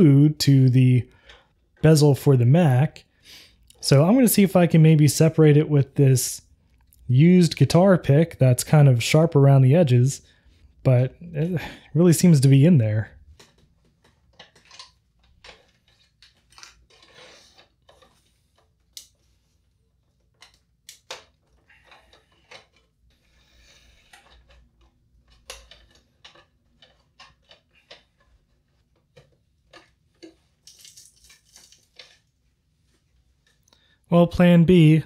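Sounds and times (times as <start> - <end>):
plastic scraping and clicking: 13.3 - 19.4.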